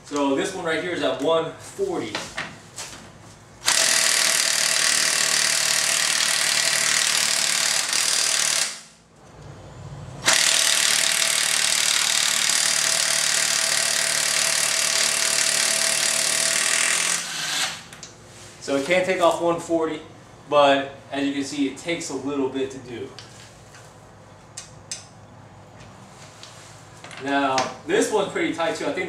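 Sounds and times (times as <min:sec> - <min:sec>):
impact wrench hammering: 0:03.6 - 0:08.9, 0:10.2 - 0:17.9.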